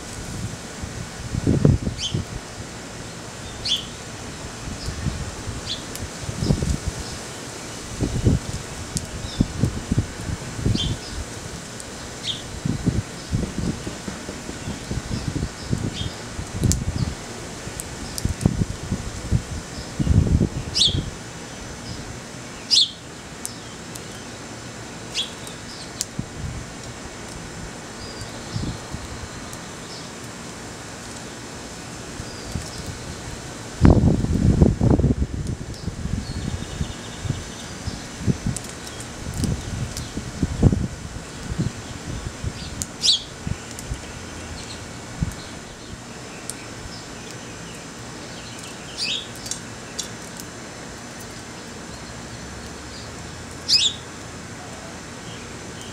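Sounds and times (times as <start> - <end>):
wind rumble on microphone: 0.0 - 22.2, 26.0 - 29.6, 32.0 - 47.2
sparrows chirping: 1.8 - 2.2, 3.0 - 4.0, 4.8 - 8.4, 10.6 - 11.2, 12.0 - 13.9, 14.5 - 16.3, 19.7 - 24.4, 25.1 - 26.1, 28.0 - 30.2, 32.1 - 33.3, 35.7 - 40.2, 41.2 - 50.4, 51.5 - 55.9.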